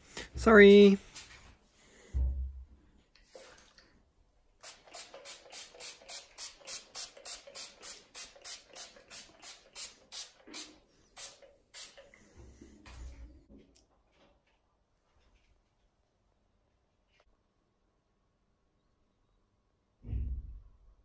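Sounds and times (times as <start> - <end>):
spray bottle hissing sprays: 4.6 - 12.3.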